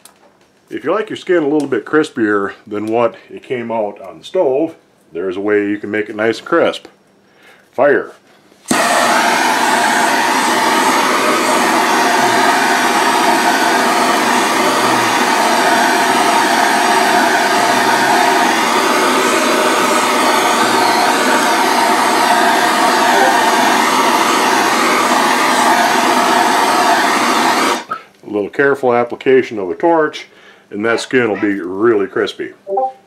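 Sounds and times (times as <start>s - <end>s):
blowtorch hissing: 8.7s - 28.0s.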